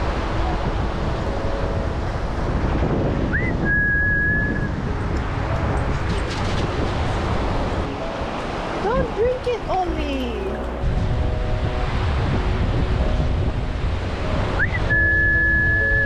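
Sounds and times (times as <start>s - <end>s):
beach surf: 0.0s - 16.0s
wind buffeting microphone: 0.0s - 16.0s
short whistle: 3.3s - 4.7s, 14.6s - 16.0s.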